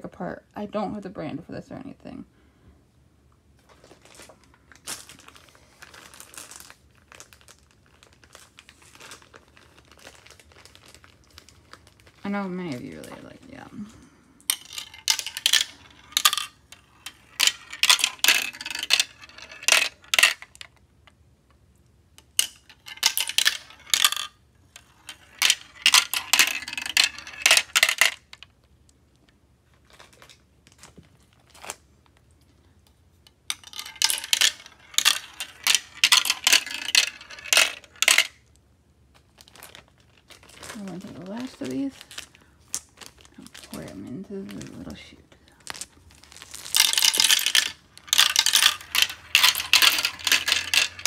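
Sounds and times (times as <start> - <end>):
marbles clattering through plastic run: 4.9 - 13.9, 14.5 - 20.8, 22.2 - 28.6, 33.5 - 38.5, 39.4 - 51.0.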